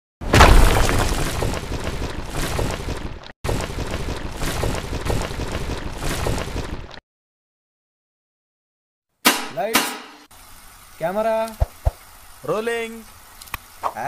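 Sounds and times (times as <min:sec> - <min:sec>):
wall smashing crash: 0:00.2 - 0:01.9
rumble of crumbling debris: 0:00.2 - 0:07.0.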